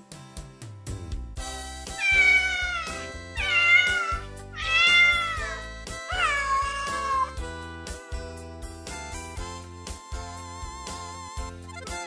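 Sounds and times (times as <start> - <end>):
background music: 0.0 - 12.0
cat meowing: 2.0 - 7.4.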